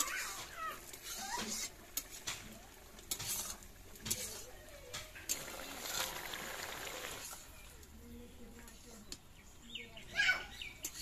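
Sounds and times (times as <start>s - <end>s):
spatula scraping a metal wok: 0.0s - 6.2s
curry sizzling: 0.0s - 10.0s.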